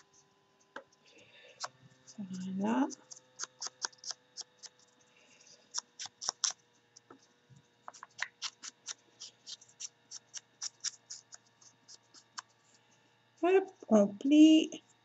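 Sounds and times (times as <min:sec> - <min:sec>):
foam tool tapping paper: 0:01.6 - 0:04.9, 0:05.7 - 0:12.6.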